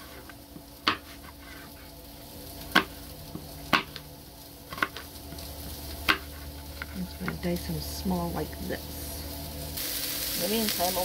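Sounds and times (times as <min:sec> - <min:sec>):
sausage sizzling in a pan: 0:00.0 - 0:11.0.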